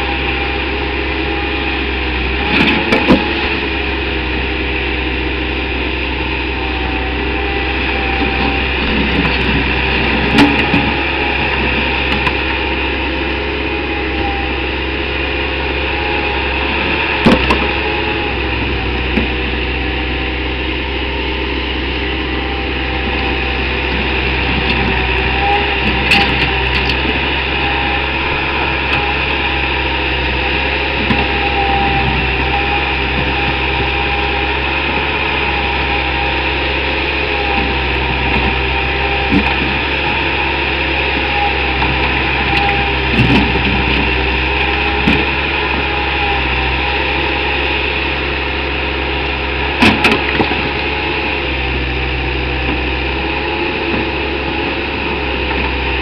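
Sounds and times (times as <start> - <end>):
diesel engine running under load: 0.0 - 56.0.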